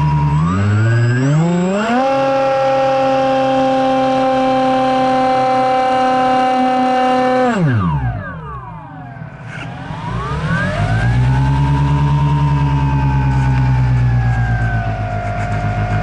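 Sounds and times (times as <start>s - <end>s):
model plane motor whining: 0.0s - 8.5s.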